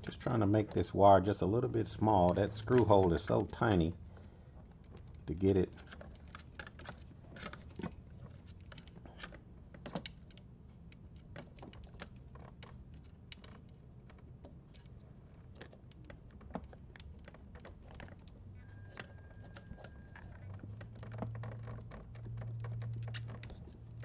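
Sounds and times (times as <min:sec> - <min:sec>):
low steady hum: 0:00.0 - 0:24.0
fingers and plastic clicking: 0:04.6 - 0:24.0
faint steady tone: 0:18.5 - 0:20.9.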